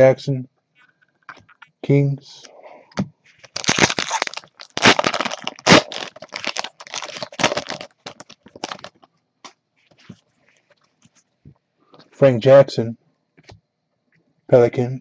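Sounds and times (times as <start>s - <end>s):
plastic wrapper crinkling: 3.3s - 9.1s.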